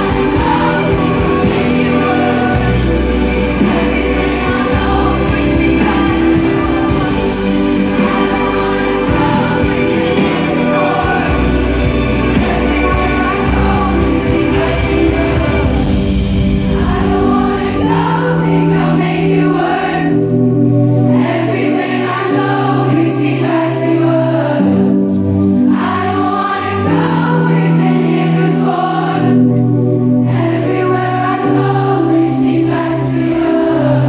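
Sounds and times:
woman singing: 0.0s - 11.6s
held bass notes: 0.0s - 21.5s
keyboard: 0.0s - 34.0s.

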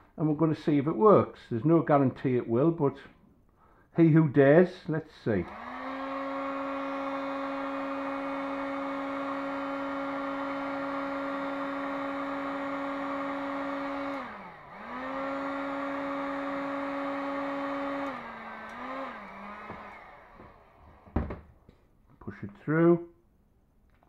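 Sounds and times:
hot air gun whining: 5.4s - 21.4s.

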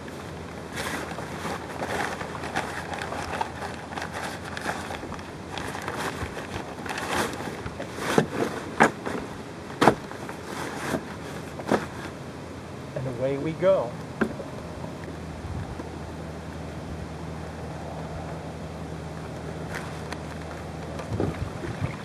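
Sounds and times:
sailcloth rustling and crinkling: 0.0s - 12.2s, 19.6s - 22.0s.

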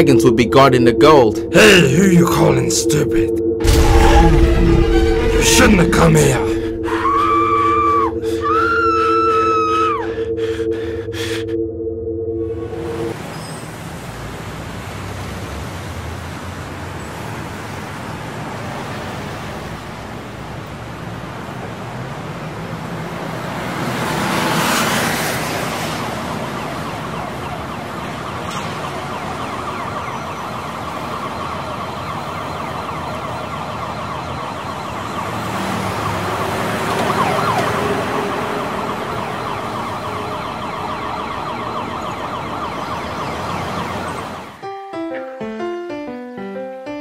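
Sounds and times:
city street traffic: 0.0s - 11.6s, 12.4s - 47.0s
siren: 0.0s - 13.2s, 24.0s - 44.6s.

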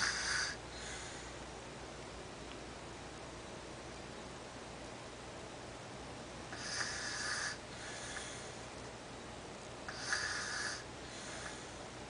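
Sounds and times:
toddler snoring: 0.0s - 1.1s, 6.5s - 8.4s, 9.9s - 11.8s
faint breath: 0.0s - 1.5s, 6.5s - 8.7s, 9.9s - 12.0s.

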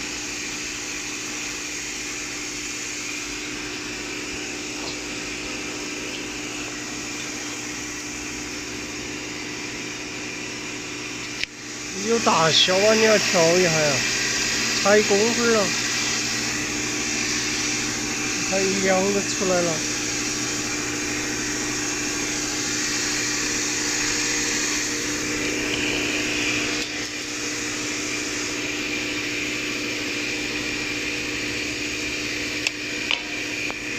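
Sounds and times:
folding machine humming: 0.0s - 33.9s
airy hiss: 11.6s - 27.4s
paper folding machine whirring: 11.9s - 27.4s.

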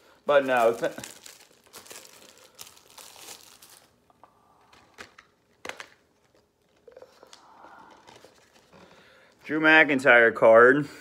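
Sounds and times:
packaging crinkling: 0.3s - 8.8s.

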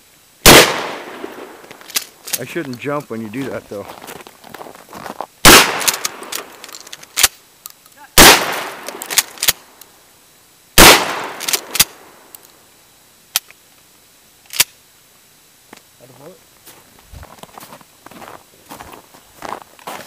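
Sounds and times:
shotgun blasts: 0.4s - 1.6s, 5.4s - 6.4s, 8.2s - 9.4s, 10.8s - 12.1s.

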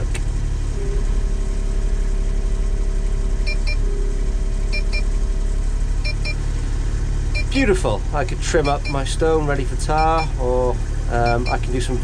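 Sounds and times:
excavator engine running: 0.0s - 12.0s
short high beeps: 7.4s - 7.6s, 8.6s - 9.0s.

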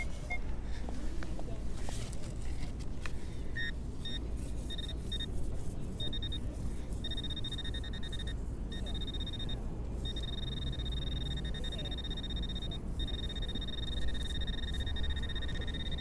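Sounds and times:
metal detector beeping: 0.0s - 0.4s, 3.6s - 5.3s, 6.0s - 6.4s, 7.0s - 16.0s.

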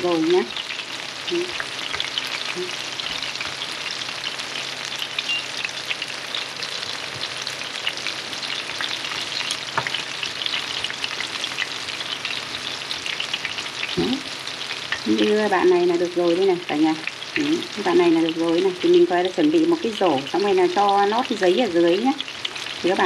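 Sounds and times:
shrimp deep-frying in oil: 0.0s - 23.0s.

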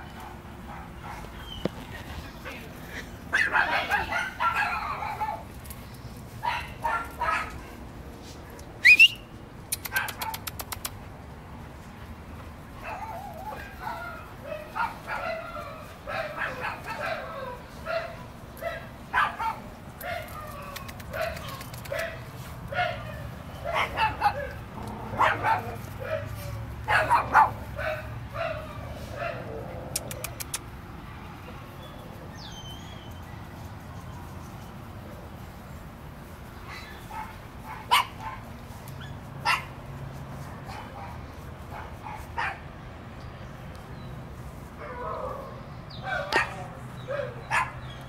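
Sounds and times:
dog barking and yipping: 3.3s - 5.5s, 6.4s - 7.7s, 12.8s - 29.5s, 36.7s - 39.8s, 44.9s - 48.0s.

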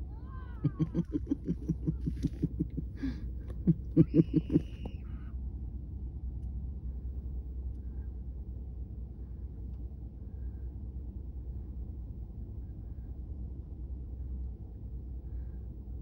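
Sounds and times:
low steady rumble: 0.0s - 16.0s
children laughing and whooping: 0.1s - 2.9s, 3.7s - 4.9s.

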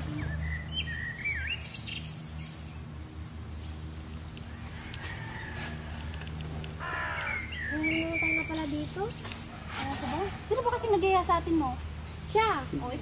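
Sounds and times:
birds chirping and whistling: 0.0s - 2.9s, 4.4s - 10.0s.

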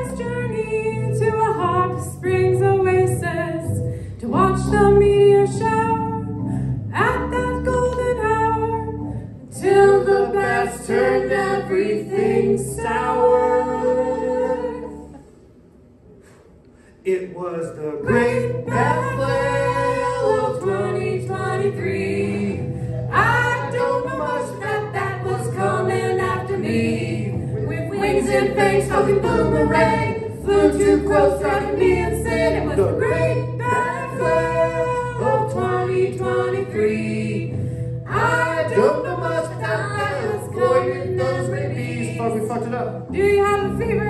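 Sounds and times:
people singing: 9.5s - 15.2s, 18.0s - 44.0s
keyboard: 18.0s - 44.0s
steady low bass notes: 18.1s - 44.0s.

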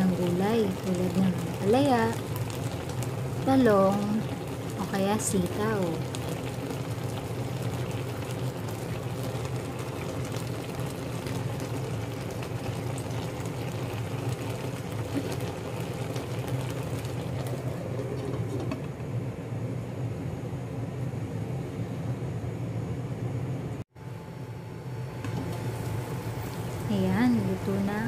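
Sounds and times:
gas stove humming and hissing: 0.0s - 28.0s.

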